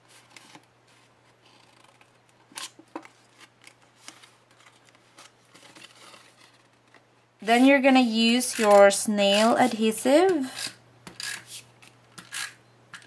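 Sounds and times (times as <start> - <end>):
scissors snipping paper: 8.3 - 11.6.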